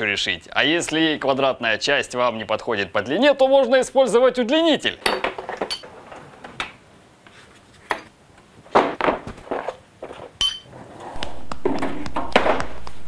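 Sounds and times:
metal tools clinking: 0:05.0 - 0:05.9.

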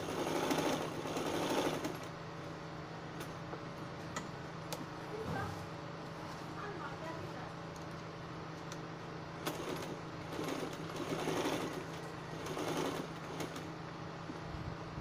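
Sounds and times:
sewing machine stitching: 0:00.0 - 0:02.1, 0:09.4 - 0:13.7
steady low hum: 0:00.0 - 0:15.0.

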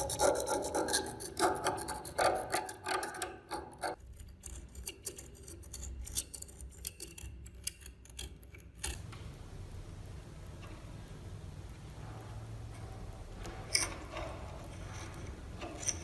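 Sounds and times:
metal tools scraping rust: 0:00.0 - 0:09.1, 0:12.0 - 0:16.0
faint hiss: 0:09.0 - 0:16.0.

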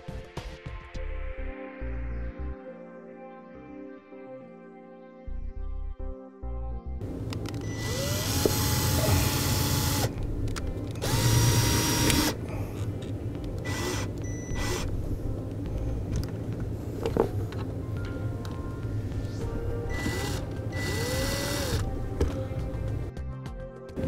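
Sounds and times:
cordless drill motor whine: 0:07.6 - 0:10.2, 0:11.0 - 0:12.9, 0:13.6 - 0:15.0, 0:19.8 - 0:22.4.

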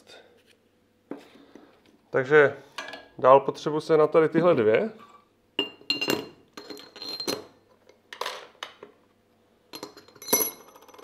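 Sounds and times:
metal parts clinking and knocking: 0:06.0 - 0:07.5, 0:09.8 - 0:11.0.

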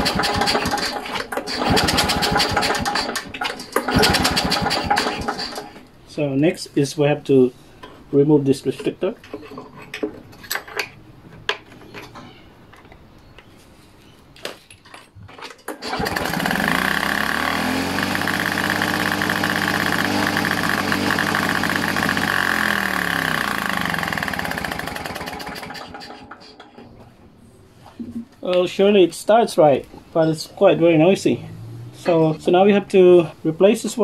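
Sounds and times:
lawnmower engine running: 0:00.0 - 0:05.9, 0:15.7 - 0:26.9.

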